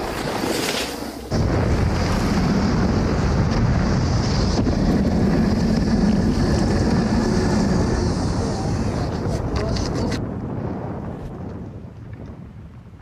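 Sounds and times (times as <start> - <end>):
sled runners rushing on ice: 0.0 - 9.6
wind over microphone: 0.0 - 13.0.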